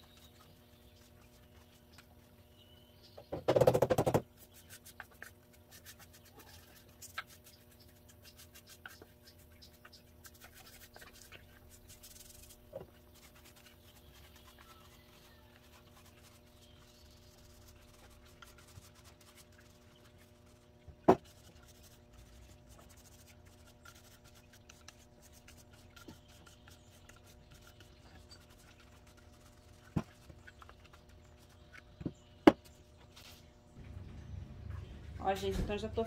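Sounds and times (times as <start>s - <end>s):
steady low hum: 4.2s - 36.0s
paintbrush scratching on wood: 4.3s - 31.7s.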